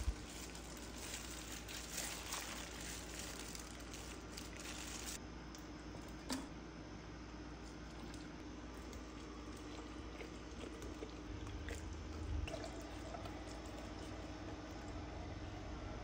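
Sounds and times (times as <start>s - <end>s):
steady low hum: 0.0s - 16.0s
wet squishing and dripping: 0.4s - 5.7s, 7.6s - 14.9s.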